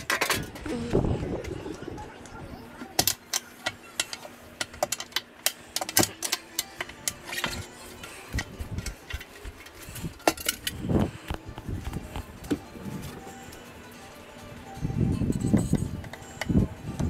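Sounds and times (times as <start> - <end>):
faint background music: 0.0 - 17.0
footsteps on concrete: 11.0 - 12.5.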